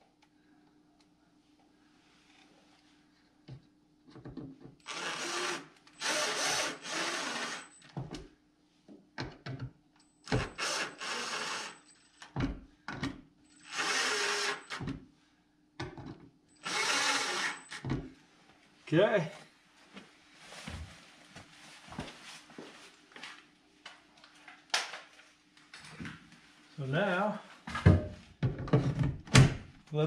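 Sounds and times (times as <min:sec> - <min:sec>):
cordless driver driving screws: 0:04.9 - 0:07.7, 0:13.7 - 0:14.8, 0:16.6 - 0:17.8.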